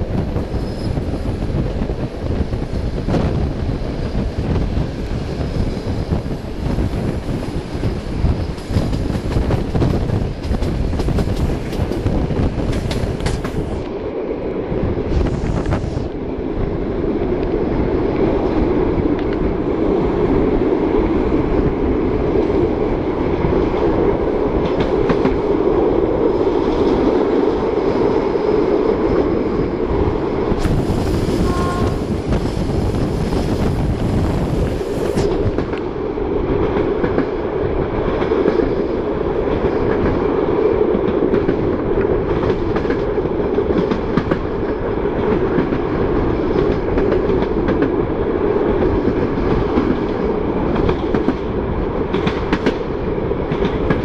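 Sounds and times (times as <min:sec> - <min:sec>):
train wheels rumbling on rails: 0:00.0 - 0:54.0
rail-joint clatter: 0:06.2 - 0:13.9, 0:24.6 - 0:25.4, 0:48.8 - 0:54.0
hiss: 0:30.6 - 0:35.4.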